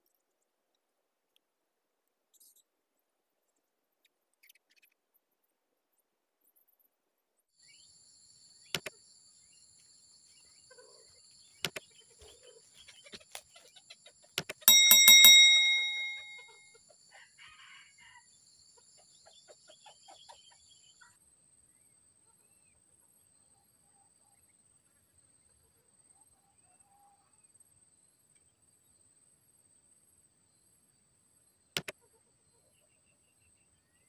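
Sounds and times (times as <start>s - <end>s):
faint high-pitched tones: 14.7s - 16.6s
notification bell trill: 14.7s - 16.6s.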